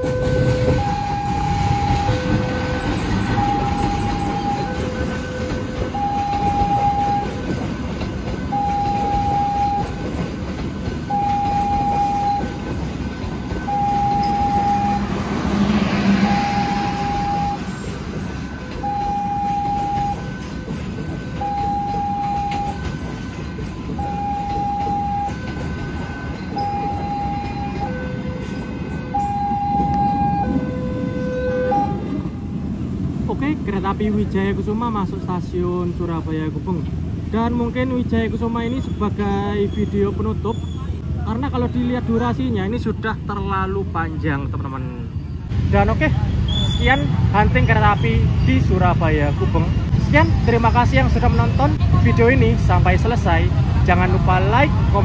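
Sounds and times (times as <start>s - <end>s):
level crossing alarm beeping: 0.0s - 10.3s, 11.0s - 32.0s
train rumbling past: 0.0s - 55.0s.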